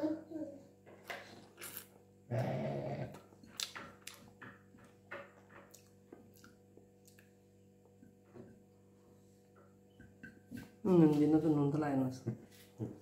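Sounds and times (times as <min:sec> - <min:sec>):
person chewing: 0:01.6 - 0:04.4, 0:05.7 - 0:07.4.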